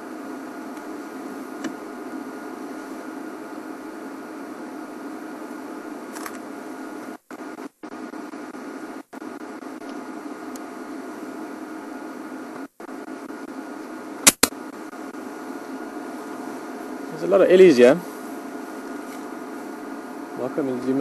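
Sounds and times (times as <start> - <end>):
background hum and hiss: 0.0 - 21.0
sharp clicks: 14.2 - 14.6.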